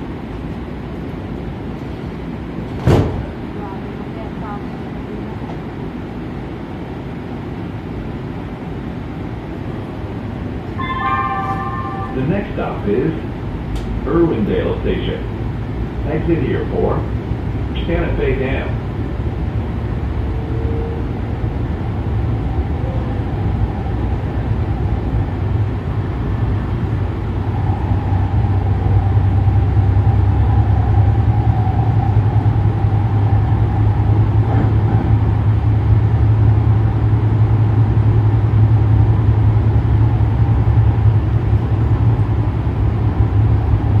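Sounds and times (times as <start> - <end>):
train wheels rumbling: 0.0 - 44.0
faint whine: 10.6 - 37.6.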